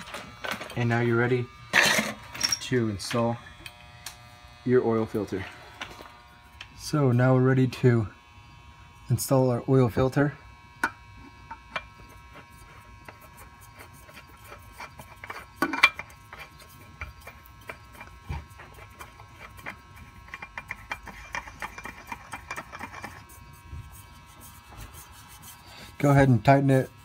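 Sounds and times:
oil filter rubbing and clicking: 11.4s - 27.0s.

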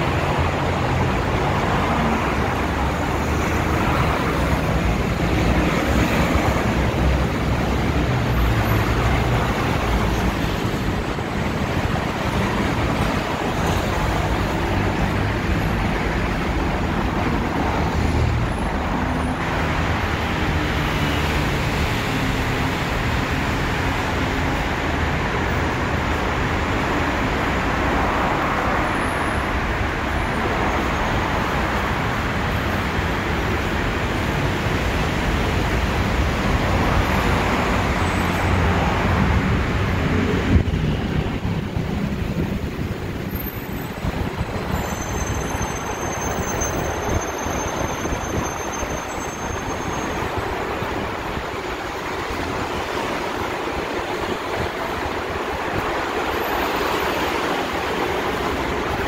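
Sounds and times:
city traffic rumble: 0.0s - 59.0s.

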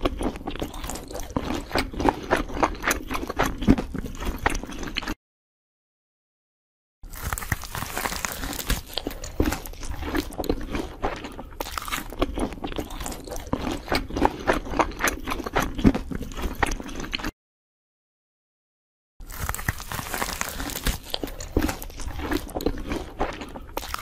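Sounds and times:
person chewing food: 0.0s - 5.2s, 7.0s - 17.4s, 19.2s - 24.0s
sharp crunches: 7.0s - 17.3s, 19.2s - 24.0s.

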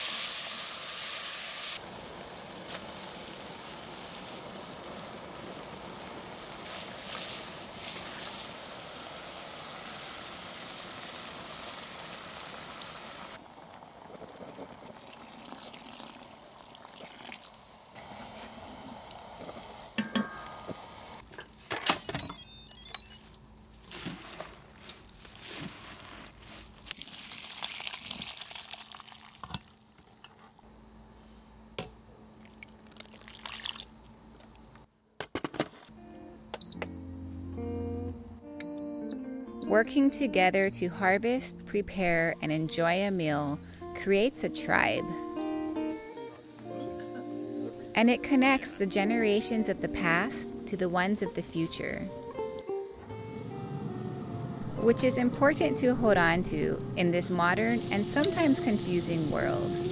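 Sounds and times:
onion and garlic sizzling in pot: 0.0s - 21.2s, 54.8s - 59.9s
liquid pouring: 13.7s - 17.7s, 26.9s - 29.8s, 32.4s - 34.2s.

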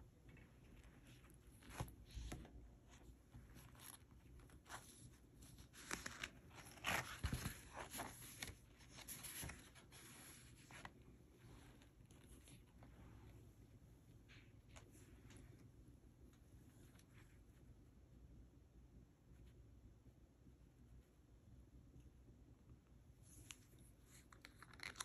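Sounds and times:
paper notebook pages rustling: 0.2s - 13.0s, 23.3s - 25.0s.

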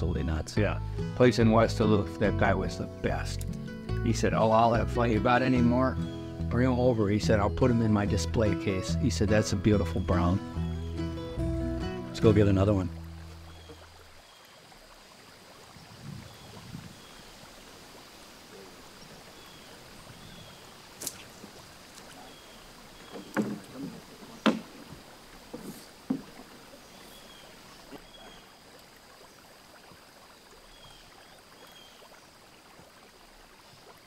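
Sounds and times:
paddle in water: 12.3s - 34.0s
faint bird chirps: 13.4s - 14.6s, 26.7s - 29.4s, 30.6s - 32.2s.

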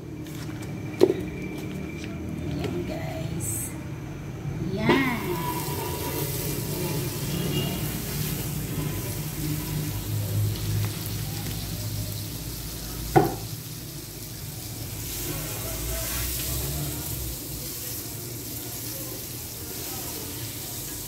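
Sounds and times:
butter sizzling in pan: 5.2s - 21.0s.

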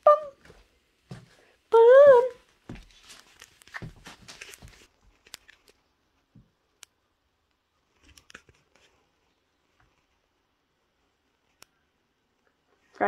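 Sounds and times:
faint rustling: 2.4s - 6.4s.

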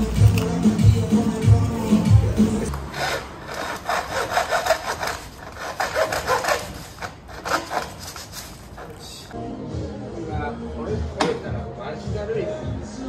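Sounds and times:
hand saw cutting wood: 2.6s - 9.2s.

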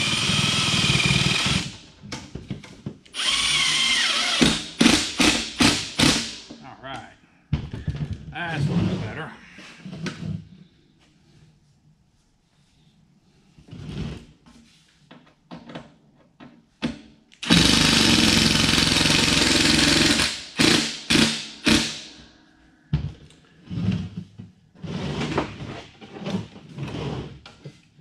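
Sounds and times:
cordless drill driving screw: 3.1s - 5.8s, 17.4s - 22.0s.

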